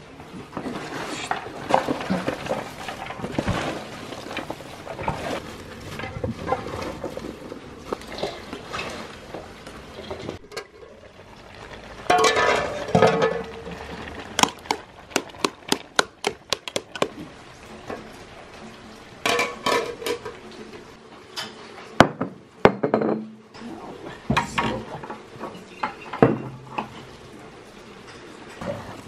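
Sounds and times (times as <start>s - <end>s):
vegetables rustling in steel bowl: 0.7s - 9.3s.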